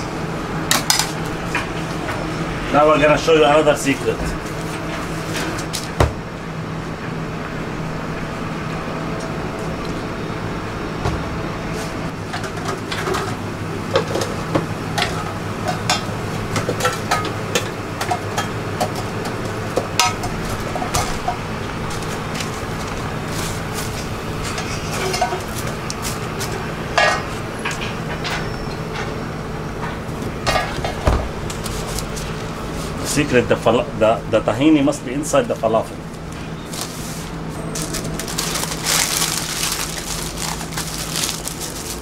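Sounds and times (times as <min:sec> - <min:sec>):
steady low hum: 0:00.0 - 0:42.0
utensils clinking on metal trays: 0:24.4 - 0:25.8, 0:36.7 - 0:42.0.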